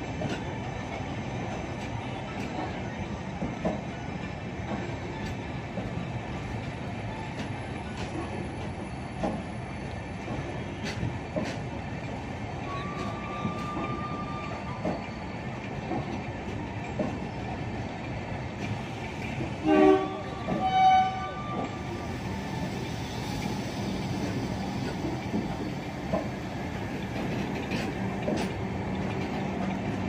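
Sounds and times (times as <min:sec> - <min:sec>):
wheels rumbling on rail: 0:00.0 - 0:30.0
train wheel clicks: 0:09.2 - 0:12.2, 0:13.0 - 0:17.3, 0:22.6 - 0:30.0.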